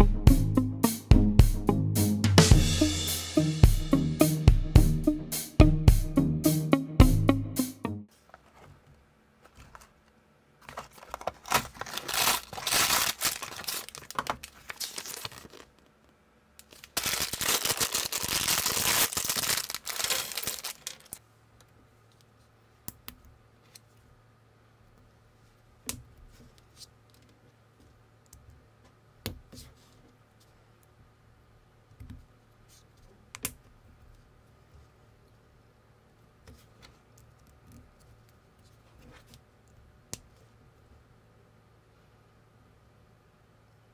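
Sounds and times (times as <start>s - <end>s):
cardboard tearing and rustling: 10.6s - 15.7s, 16.7s - 21.2s.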